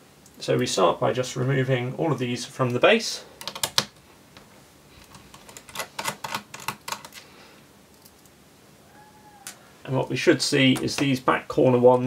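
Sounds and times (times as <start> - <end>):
screwdriver clicking on plastic: 5.0 - 7.2.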